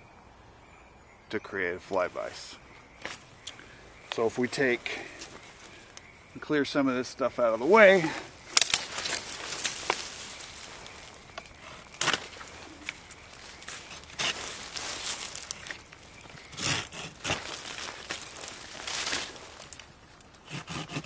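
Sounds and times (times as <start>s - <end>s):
dry brush crackling and snapping: 7.8s - 21.0s.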